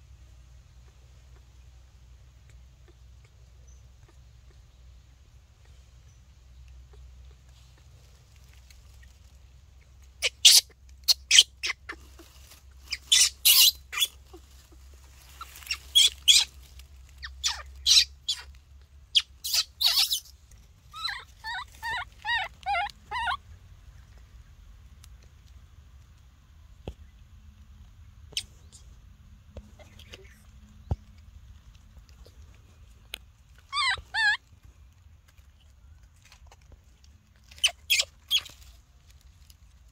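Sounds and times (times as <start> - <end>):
monkey squeaking and chirping: 9.8 - 23.5, 28.3 - 28.9, 33.5 - 34.6, 37.4 - 38.8.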